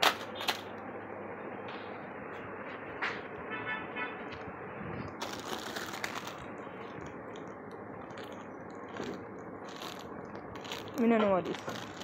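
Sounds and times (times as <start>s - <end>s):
plastic wrapping crinkling: 5.1s - 12.0s.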